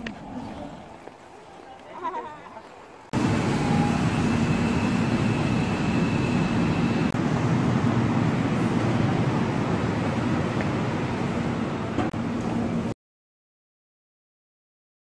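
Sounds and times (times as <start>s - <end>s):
quiet street sound: 0.0s - 13.0s
subway train rumble: 2.9s - 12.9s
high train whine: 3.0s - 12.9s.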